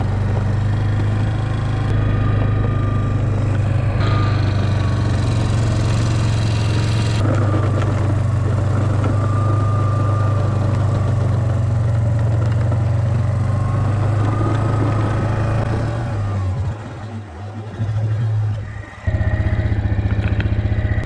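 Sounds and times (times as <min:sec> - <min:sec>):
atv engine running under load: 0:00.0 - 0:21.0
faint high whine: 0:01.7 - 0:11.4.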